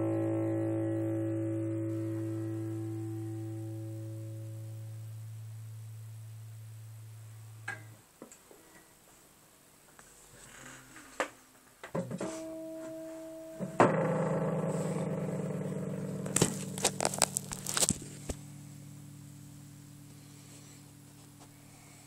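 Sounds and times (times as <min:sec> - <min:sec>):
soft held guitar note: 0:00.0 - 0:05.5
guitar chord ringing: 0:00.0 - 0:08.0, 0:12.2 - 0:22.0.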